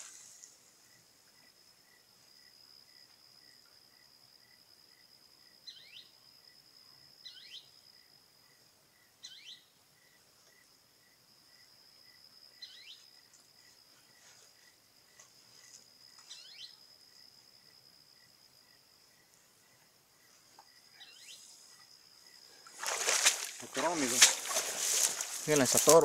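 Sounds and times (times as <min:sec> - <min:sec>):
insect chorus buzzing: 0:00.0 - 0:26.0
pulsing insect chirp: 0:00.0 - 0:26.0.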